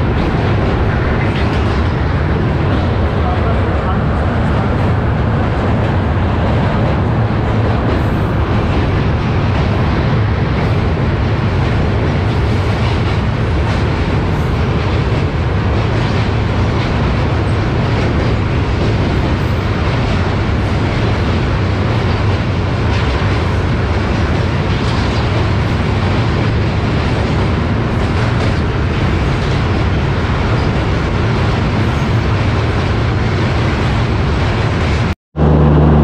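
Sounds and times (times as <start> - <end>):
train wheels rumbling on rails: 0.0 - 36.0.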